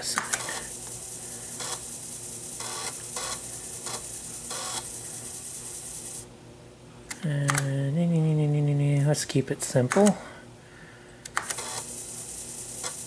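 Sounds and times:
floppy drive whirring: 0:00.0 - 0:06.3, 0:11.1 - 0:13.0
floppy drive buzzes: 0:00.0 - 0:13.0.

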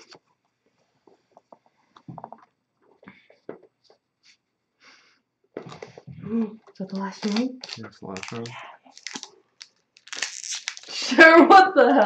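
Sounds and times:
cards rustling and sliding: 0:06.9 - 0:09.2.

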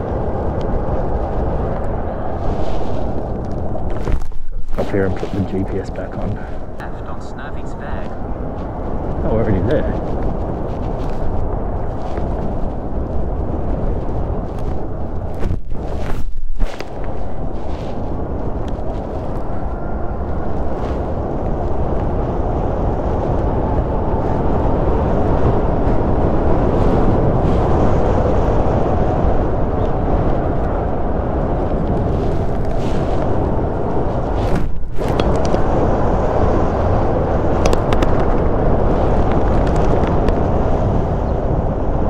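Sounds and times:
wind buffeting microphone: 0:00.0 - 0:42.0.

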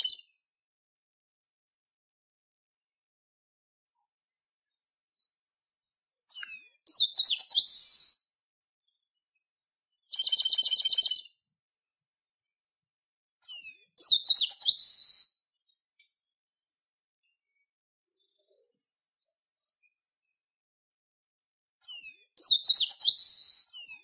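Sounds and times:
bird singing: 0:00.0 - 0:00.4, 0:03.9 - 0:08.2, 0:08.8 - 0:12.6, 0:13.4 - 0:20.5, 0:21.8 - 0:24.0.

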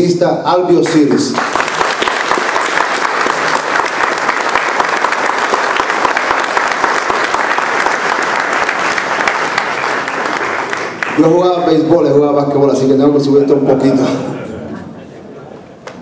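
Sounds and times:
audience applauding: 0:00.9 - 0:11.9.

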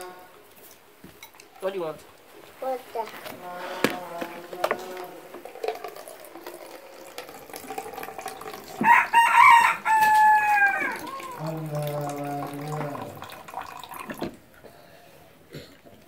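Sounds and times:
rooster crowing: 0:08.7 - 0:11.6.

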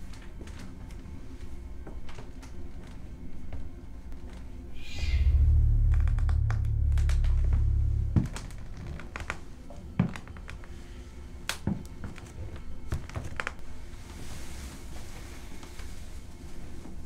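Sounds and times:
deep horror drone: 0:04.3 - 0:11.4.

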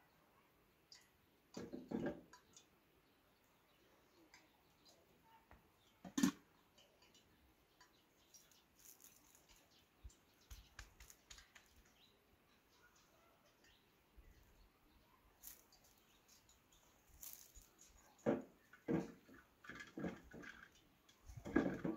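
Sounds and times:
small clicks and taps: 0:04.3 - 0:12.0.

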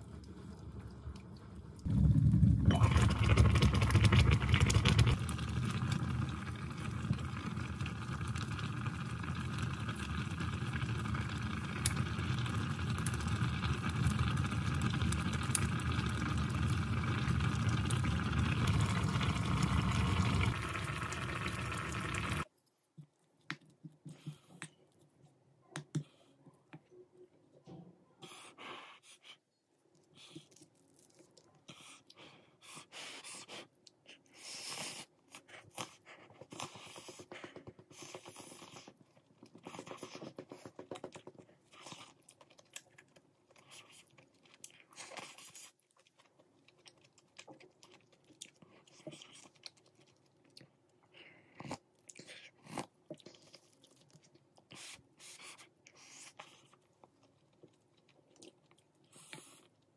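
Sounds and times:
stew bubbling in a pot: 0:00.0 - 0:22.5.

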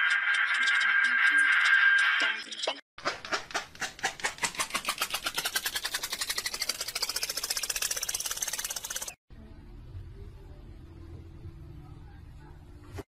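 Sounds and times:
rapid sharp clicks speeding up: 0:03.0 - 0:09.2.

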